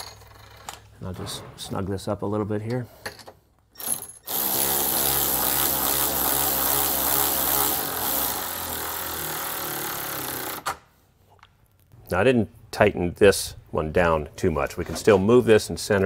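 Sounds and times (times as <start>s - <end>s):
cordless ratchet motor whirring: 4.3s - 10.6s.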